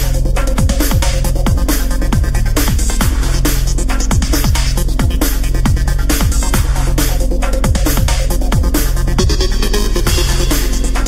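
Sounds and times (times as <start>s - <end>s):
electronic dance music: 0.0s - 11.0s
steady kick drum beat: 0.0s - 11.0s.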